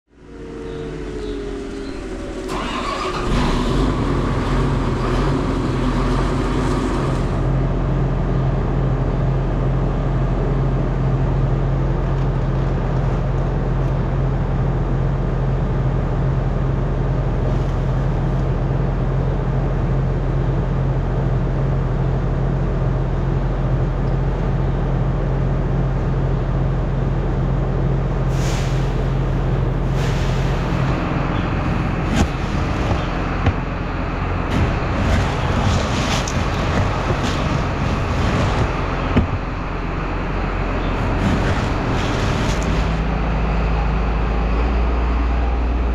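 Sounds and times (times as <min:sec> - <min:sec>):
tractor engine running: 0:00.2 - 0:28.3, 0:28.9 - 0:45.9
short hisses: 0:28.3 - 0:29.2, 0:29.9 - 0:30.8.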